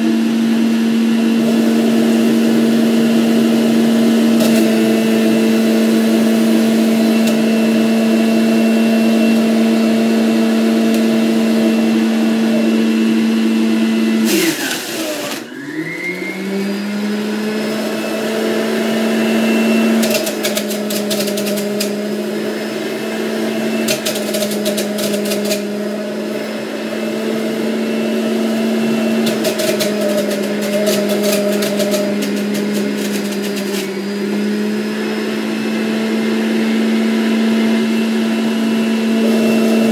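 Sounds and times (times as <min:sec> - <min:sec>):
juicer motor hum: 0:00.0 - 0:39.9
crackly grinding of fruit: 0:19.8 - 0:22.3, 0:23.7 - 0:26.6, 0:28.6 - 0:34.7.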